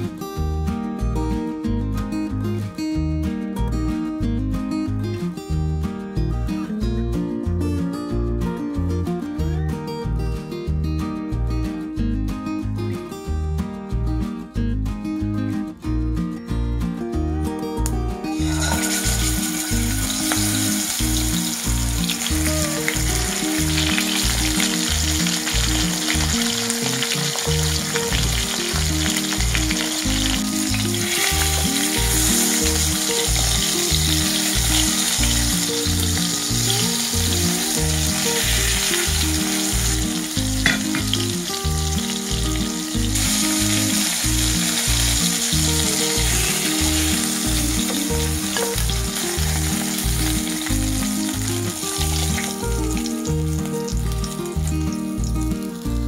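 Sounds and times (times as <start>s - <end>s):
background music: 0.0s - 56.0s
fish sizzling in hot oil: 18.4s - 55.9s.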